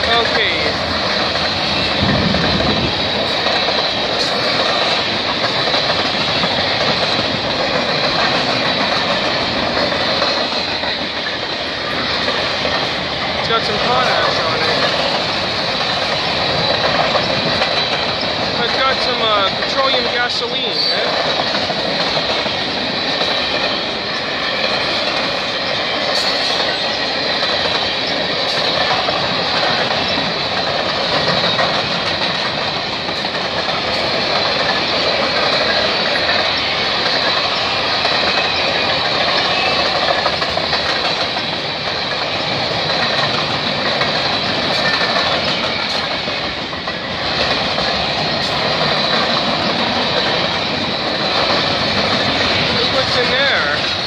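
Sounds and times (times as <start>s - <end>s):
train wheels rumbling on rail: 0.0s - 54.0s
wheels clicking over rail joints: 0.0s - 54.0s.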